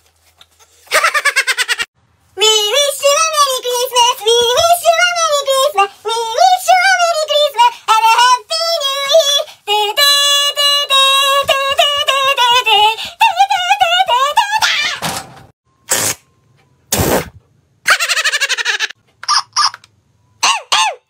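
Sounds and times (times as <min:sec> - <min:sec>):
high-pitched singing: 0:02.4 - 0:15.0.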